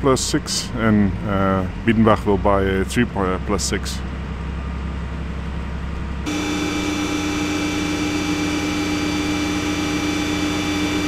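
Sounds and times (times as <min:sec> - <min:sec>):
heavy machinery humming: 0:04.1 - 0:11.0
mechanical whine: 0:06.2 - 0:11.0.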